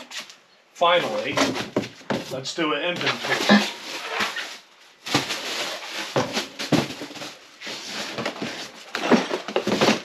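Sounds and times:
packaging rustling: 3.0s - 10.0s.

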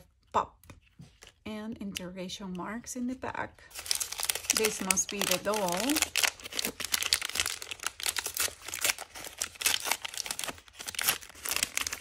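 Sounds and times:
plastic wrapper crinkling: 3.7s - 12.0s.

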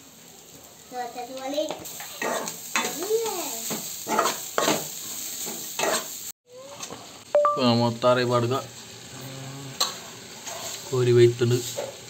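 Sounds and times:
food sizzling in a pan: 0.0s - 12.0s
spoon scraping a pan: 2.0s - 3.0s, 3.6s - 6.2s, 9.8s - 10.9s.

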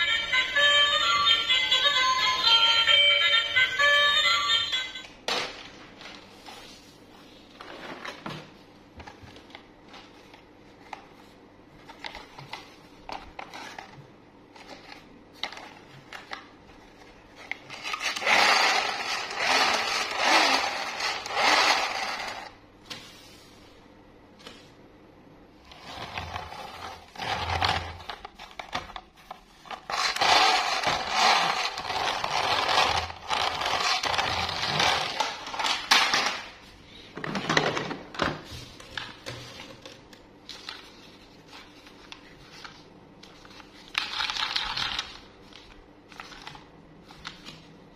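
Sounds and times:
toy train wheels whirring and rattling: 18.0s - 22.5s, 29.9s - 35.2s.

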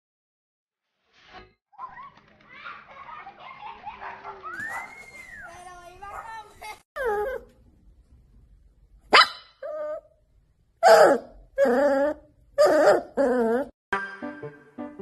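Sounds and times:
puppy barking: 3.9s - 5.1s, 6.0s - 6.5s, 9.1s - 10.0s, 10.8s - 11.3s.

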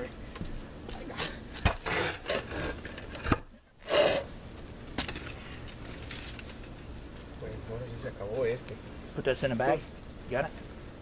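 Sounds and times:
tool scraping roofing cement: 1.2s - 4.3s.

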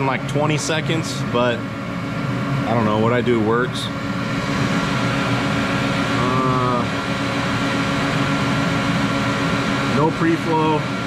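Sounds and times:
machinery humming: 0.0s - 11.0s
brief hummed voice: 6.2s - 6.9s.

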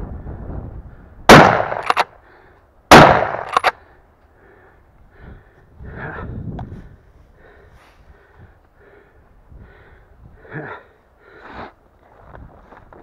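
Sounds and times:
quick sharp cracks: 1.3s - 2.1s, 2.9s - 3.8s
shotgun shots: 1.3s - 2.1s, 2.9s - 3.7s.

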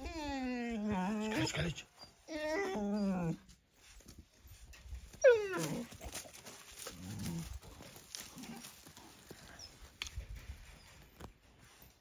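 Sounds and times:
young dog crying: 0.0s - 3.5s, 5.2s - 6.0s.

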